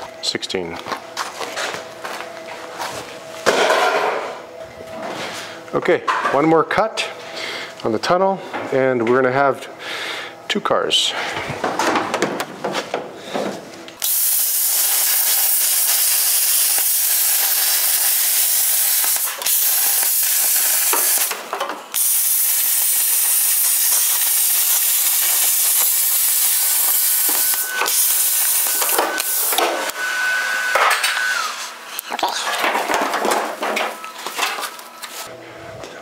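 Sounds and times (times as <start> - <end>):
plasma cutter hissing: 14.0 - 29.6.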